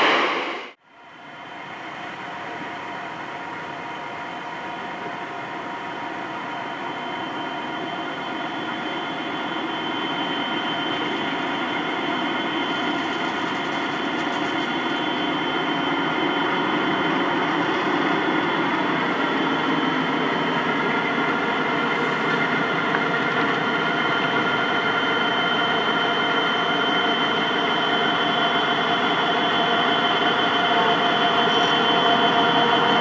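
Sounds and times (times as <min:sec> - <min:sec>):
diesel locomotive engine drone: 0:00.0 - 0:33.0.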